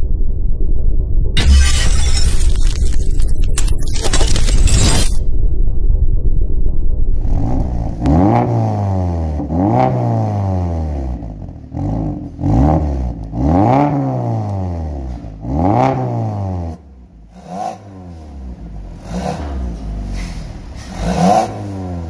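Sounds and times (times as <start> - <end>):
car engine revving: 7.1 - 22.0.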